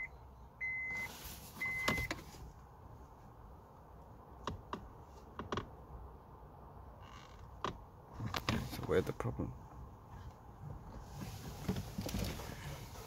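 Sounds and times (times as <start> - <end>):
electronic beep: 0.0 - 2.1.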